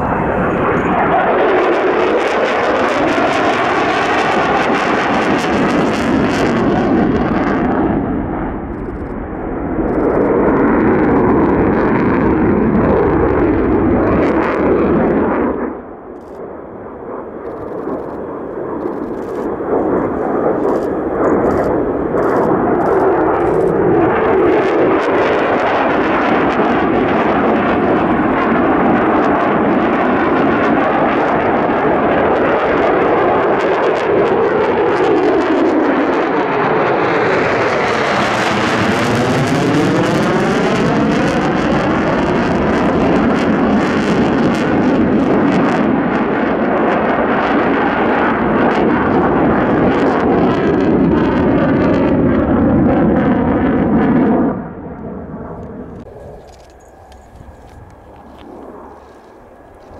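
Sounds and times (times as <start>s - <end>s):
jet engine roaring: 0.0s - 59.9s.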